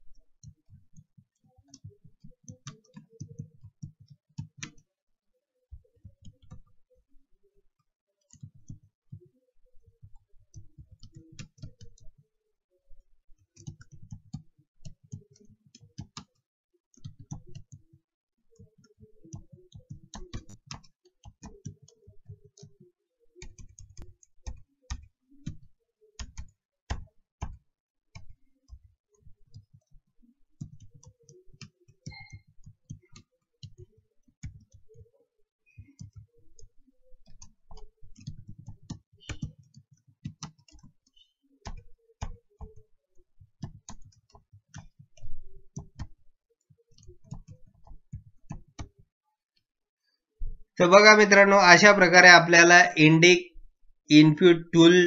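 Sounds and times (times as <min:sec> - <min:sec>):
computer keyboard typing: 0:00.4 - 0:04.8, 0:10.0 - 0:12.2, 0:13.4 - 0:49.0.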